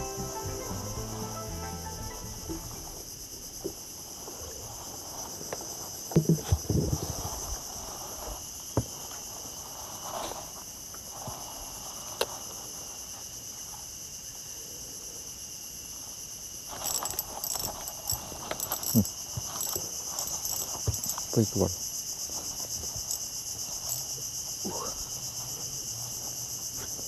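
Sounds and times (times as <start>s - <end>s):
high-pitched insect chorus: 0.0s - 27.0s
clattering: 16.7s - 21.4s.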